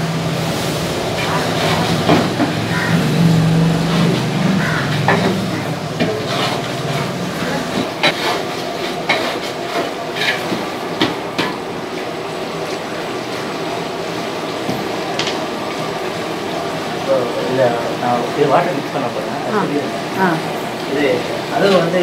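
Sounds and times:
steady background roar: 0:00.0 - 0:22.0
metal spatula scraping a pot: 0:06.0 - 0:10.5.

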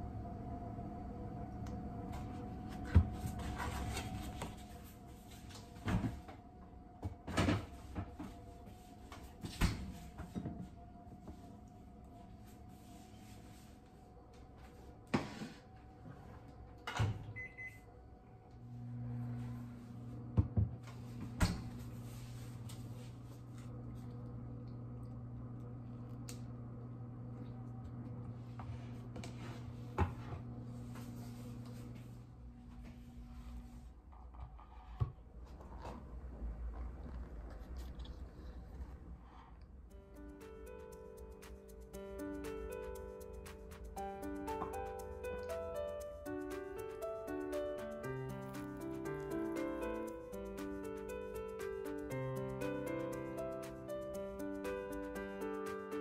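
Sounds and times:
microwave oven humming: 0:00.0 - 0:33.8.

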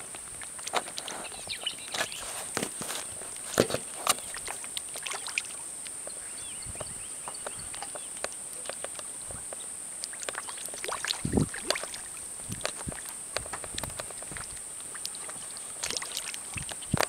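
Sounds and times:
fish splashing at water surface: 0:02.1 - 0:06.0, 0:10.0 - 0:17.0
deep splash: 0:10.8 - 0:12.6.

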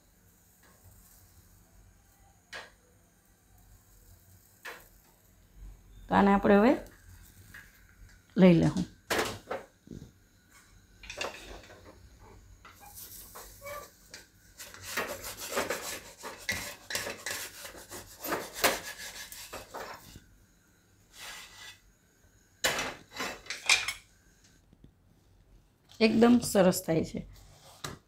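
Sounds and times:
spatula scraping a griddle: 0:12.7 - 0:20.2, 0:21.1 - 0:21.9, 0:22.9 - 0:23.9.

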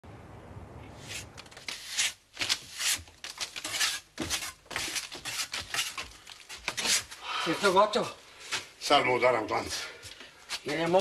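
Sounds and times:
tool scraping plaster wall: 0:01.0 - 0:07.1.

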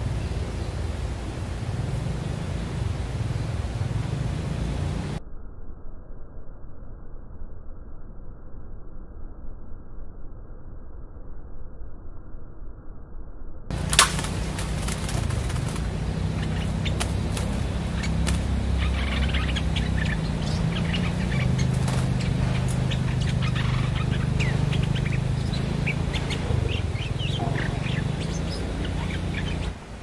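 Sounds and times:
birds chirping: 0:00.0 - 0:05.2, 0:13.7 - 0:30.0
loud steady low rumble: 0:00.0 - 0:05.2, 0:13.7 - 0:30.0.

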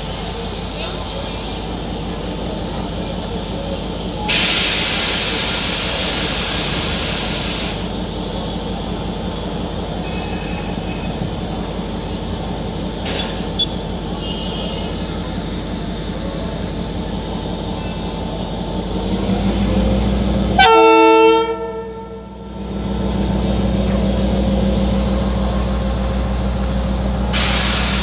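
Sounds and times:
train machinery running: 0:00.0 - 0:28.0
compressed air hissing: 0:03.8 - 0:07.9, 0:27.3 - 0:28.0.

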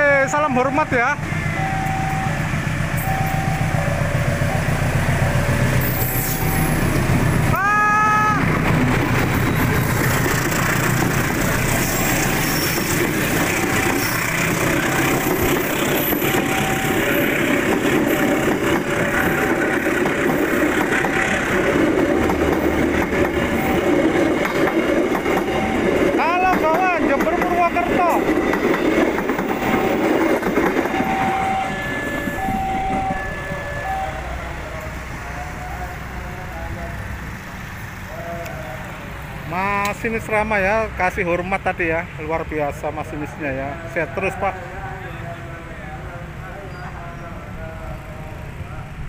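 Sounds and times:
steady high tones: 0:00.0 - 0:07.4, 0:10.6 - 0:36.5
train wheels on rails: 0:00.4 - 0:40.2.

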